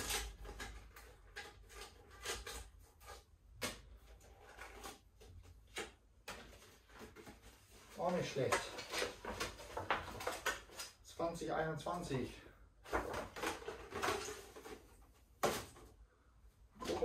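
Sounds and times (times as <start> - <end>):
paper rustling: 4.1 - 11.0, 12.8 - 15.9.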